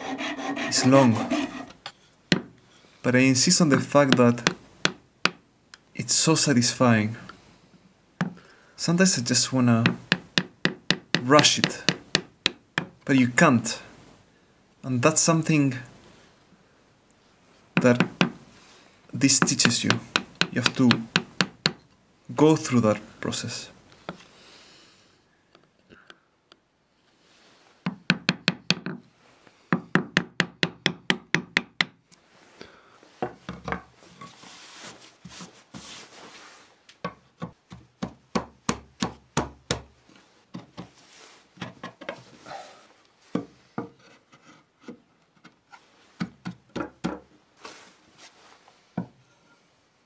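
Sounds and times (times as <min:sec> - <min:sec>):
chisel tapping wood: 0:09.8 - 0:13.0, 0:17.8 - 0:18.4, 0:19.4 - 0:21.8, 0:27.9 - 0:29.0, 0:29.8 - 0:32.0.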